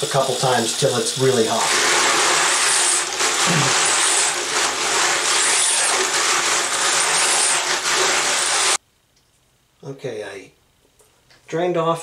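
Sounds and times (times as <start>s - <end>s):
tap water running into tub: 0.0s - 8.8s.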